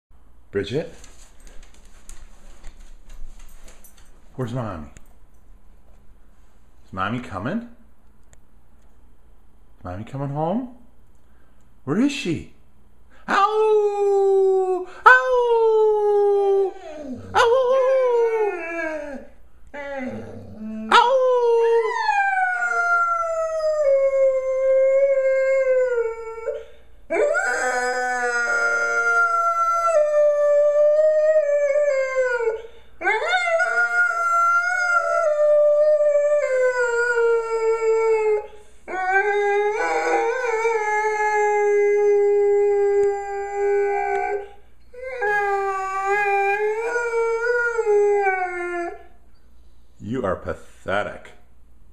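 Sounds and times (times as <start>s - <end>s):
dog howling: 13.4s - 49.1s.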